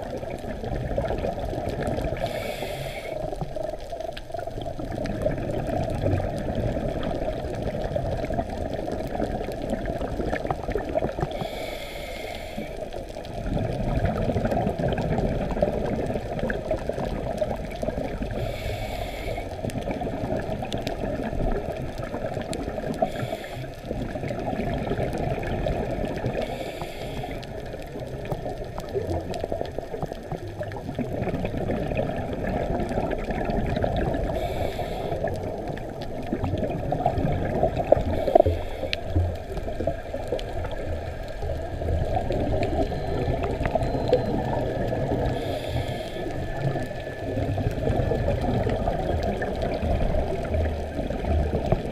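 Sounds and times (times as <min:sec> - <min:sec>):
gurgling exhaled bubbles: 0:00.0 - 0:51.9
muffled underwater noise: 0:00.0 - 0:51.9
regulator hiss on inhale: 0:02.1 - 0:03.7, 0:11.1 - 0:13.2, 0:18.1 - 0:19.9, 0:22.8 - 0:24.0, 0:26.3 - 0:28.0, 0:34.2 - 0:36.1, 0:37.9 - 0:44.3, 0:44.9 - 0:48.0.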